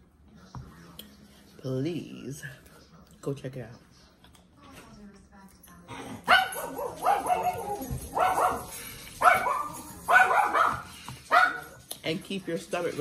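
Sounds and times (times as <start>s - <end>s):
dog barking: 6.2s - 11.8s.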